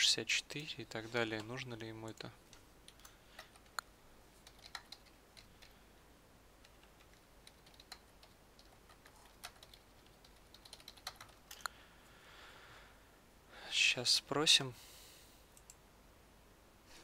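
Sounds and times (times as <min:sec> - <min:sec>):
computer keyboard keystrokes: 0:04.4 - 0:05.8, 0:06.6 - 0:11.7.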